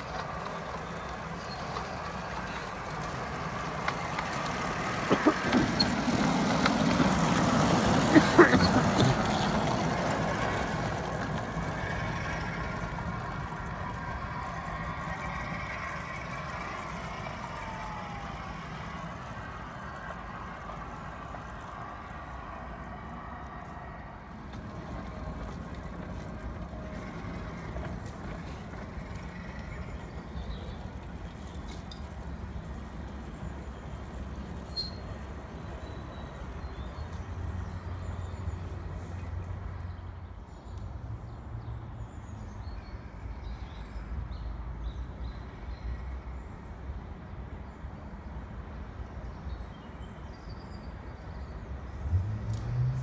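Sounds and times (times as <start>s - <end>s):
model locomotive running on track: 0.0s - 39.0s.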